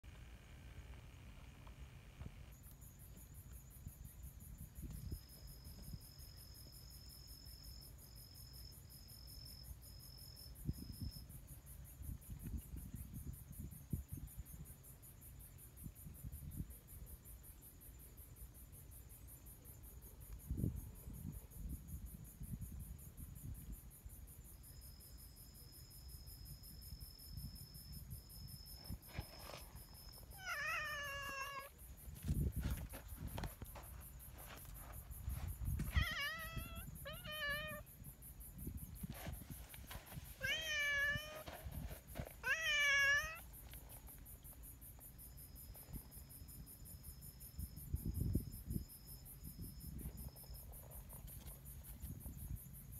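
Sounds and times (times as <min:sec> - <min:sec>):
high insect trill: 0:00.1 - 0:52.9
cat meowing: 0:30.4 - 0:31.7, 0:35.8 - 0:37.8, 0:40.4 - 0:41.4, 0:42.4 - 0:43.4.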